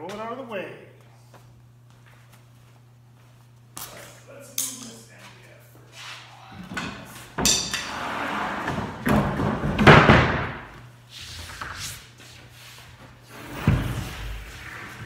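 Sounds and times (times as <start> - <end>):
heavy object scraping on floor: 7.8 - 9.0, 13.3 - 15.0.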